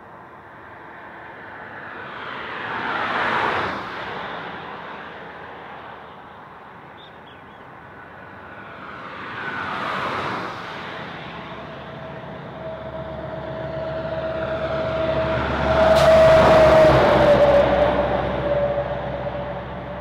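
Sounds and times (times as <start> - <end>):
truck whine passing: 7.7 - 20.0
vehicle rushing by: 8.2 - 20.0.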